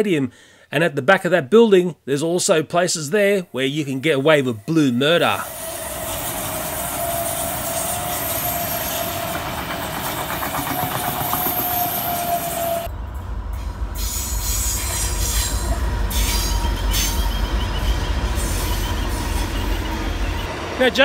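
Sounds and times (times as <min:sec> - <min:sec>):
electric train whining past: 0:03.9 - 0:21.0
diesel locomotive rumbling: 0:04.6 - 0:21.0.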